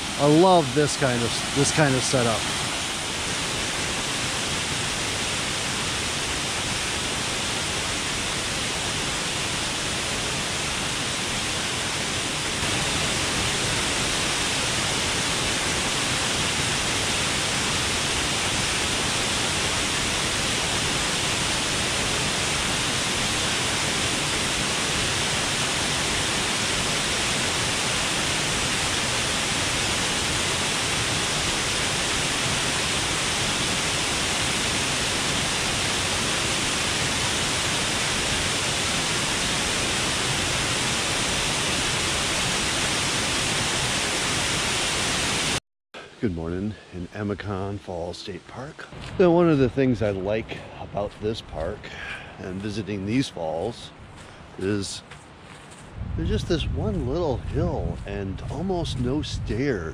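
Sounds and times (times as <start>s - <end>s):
waterfall rushing: 0.0s - 46.3s, 54.6s - 55.0s.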